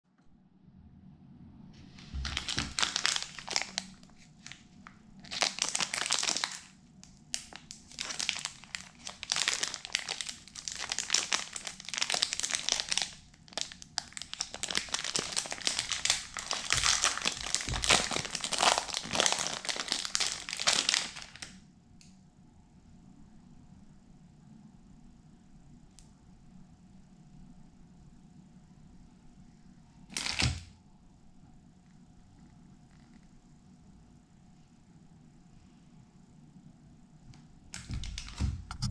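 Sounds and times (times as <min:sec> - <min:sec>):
plastic wrapper crinkling: 0:02.0 - 0:21.6, 0:30.1 - 0:30.6, 0:37.8 - 0:38.9.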